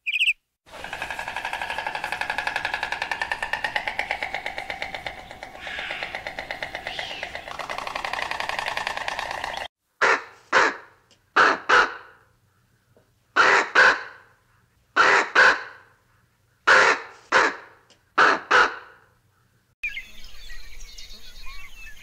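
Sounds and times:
raven croaking: 0:00.7 - 0:12.2, 0:16.7 - 0:19.0.

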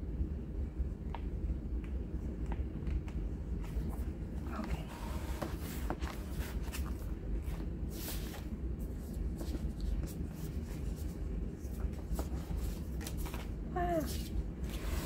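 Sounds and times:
paper pages rustling: 0:03.6 - 0:15.0.

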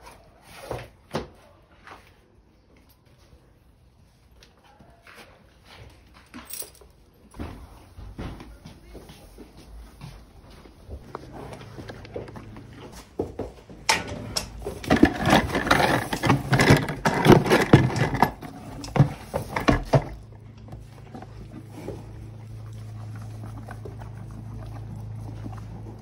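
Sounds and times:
horse crunching feed: 0:10.5 - 0:26.0
low steady hum: 0:13.7 - 0:26.0
plastic bucket rattling against manger: 0:14.6 - 0:21.2.

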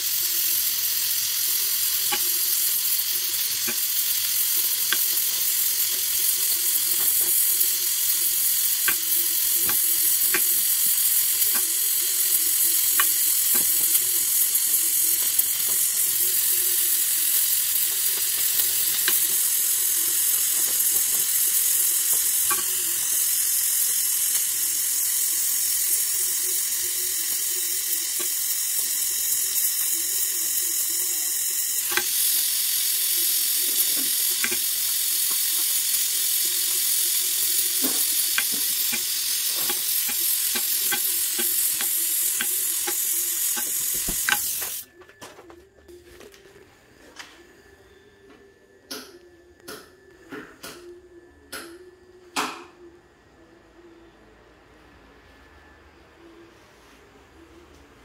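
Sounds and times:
welding torch flame hissing: 0:00.0 - 0:44.9.

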